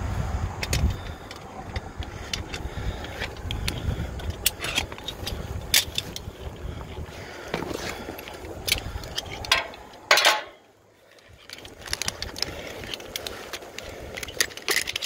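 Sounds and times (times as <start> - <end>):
wind rumble on microphone: 0.0 - 10.2, 11.2 - 15.0
small hardware clicking and clinking: 8.2 - 15.0.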